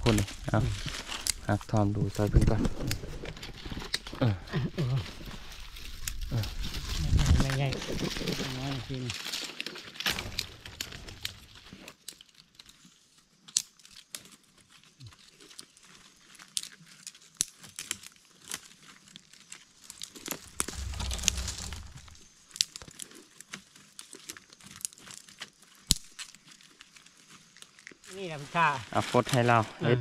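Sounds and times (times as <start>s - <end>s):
dry leaves and twigs crumpling: 0.0s - 29.6s
low rumble: 20.3s - 22.3s.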